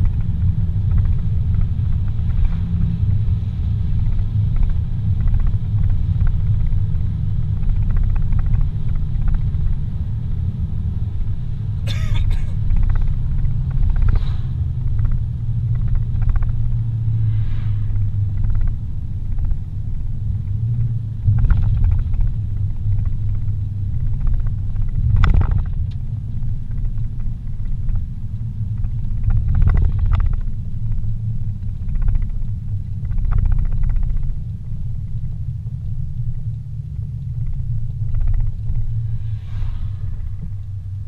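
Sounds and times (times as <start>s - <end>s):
car engine rumble inside cabin: 0.0s - 41.0s.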